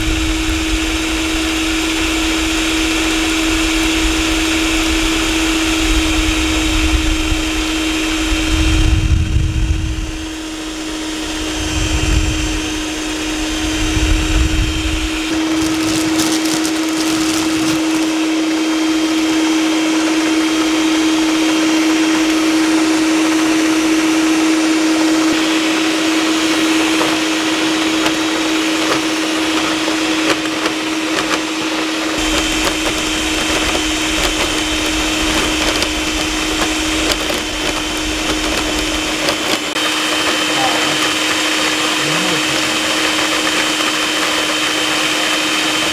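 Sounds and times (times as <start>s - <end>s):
low rumbles: 0.0s - 17.7s
stand mixer whirring: 0.0s - 45.9s.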